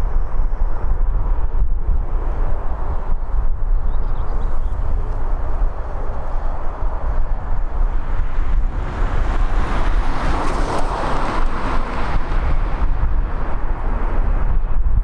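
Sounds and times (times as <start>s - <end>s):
wind rumble on microphone: 0.0s - 15.0s
jet engines roaring: 4.5s - 14.5s.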